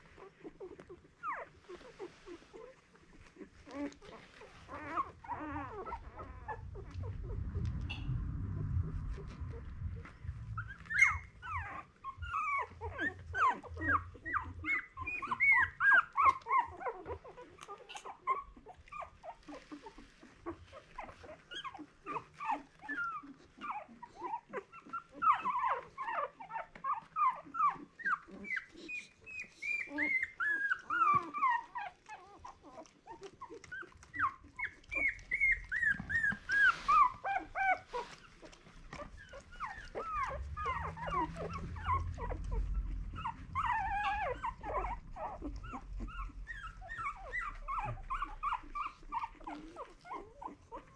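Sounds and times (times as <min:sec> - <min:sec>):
puppies whimpering and squeaking: 0:00.0 - 0:50.9.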